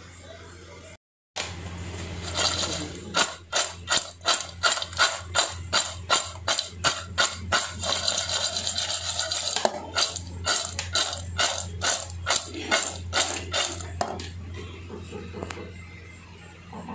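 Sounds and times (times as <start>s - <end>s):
fries tossed in a metal bowl: 1.4s - 14.3s.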